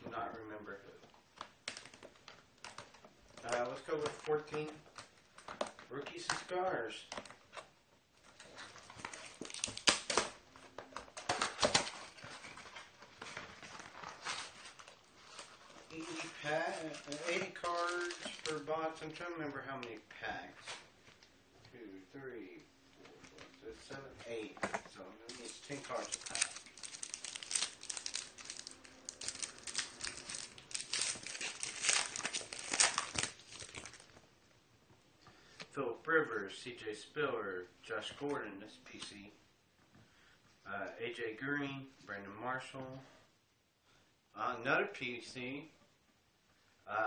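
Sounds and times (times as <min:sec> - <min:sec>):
packaging tearing and crinkling: 0:08.8 - 0:10.4, 0:13.6 - 0:18.7, 0:25.3 - 0:34.2.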